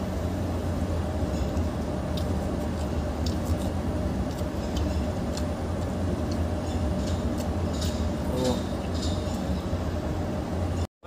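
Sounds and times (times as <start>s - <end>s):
low background rumble: 0.0s - 10.9s
chewing: 1.4s - 9.2s.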